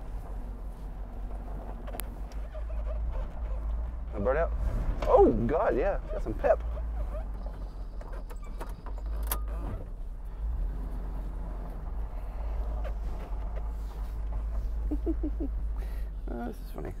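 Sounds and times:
truck engine humming: 0:00.0 - 0:17.0
cab clicks and rattles: 0:01.2 - 0:10.0, 0:12.4 - 0:15.7.

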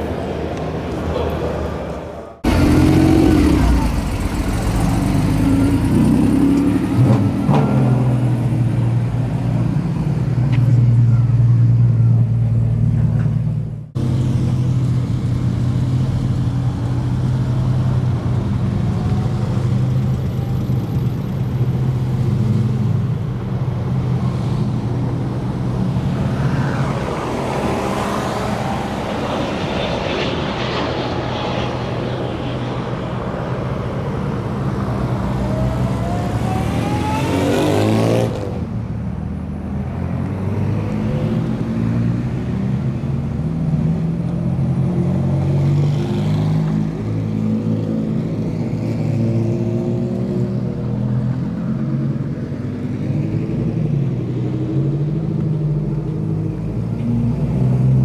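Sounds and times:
jet airliner taking off: 0:00.0 - 0:09.4, 0:25.0 - 0:39.0
car engines rumbling: 0:00.0 - 0:58.0.

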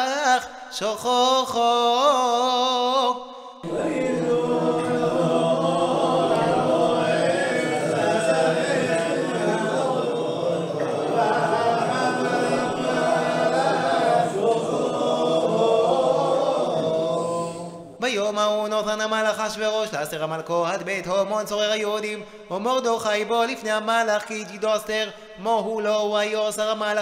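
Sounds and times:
group singing a cappella: 0:03.1 - 0:18.0.

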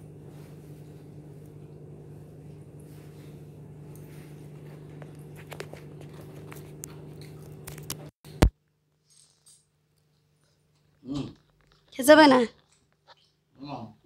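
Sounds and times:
steady low hum: 0:00.0 - 0:08.5.

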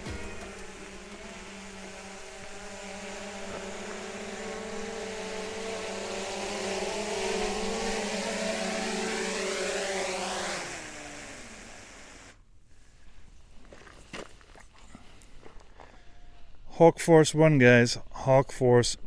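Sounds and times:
drone propellers whining: 0:00.0 - 0:12.4.

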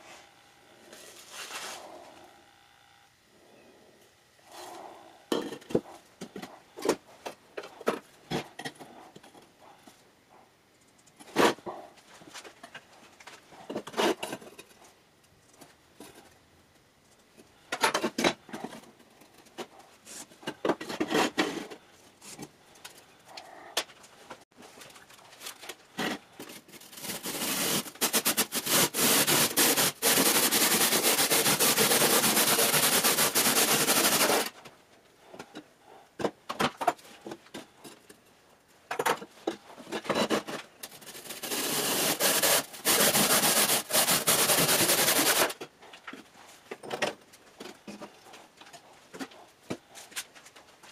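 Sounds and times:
handsaw rasping through brick: 0:26.9 - 0:34.6, 0:41.2 - 0:45.6.

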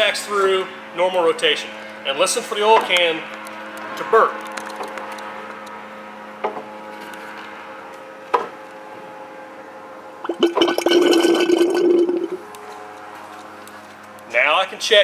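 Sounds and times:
oil tank gurgling: 0:10.2 - 0:12.5.

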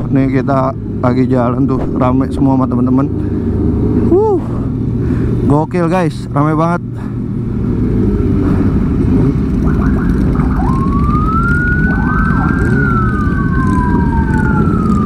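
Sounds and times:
motorcycle engines rumbling: 0:00.0 - 0:15.0
wind: 0:00.0 - 0:15.0
siren wailing: 0:09.6 - 0:15.0.

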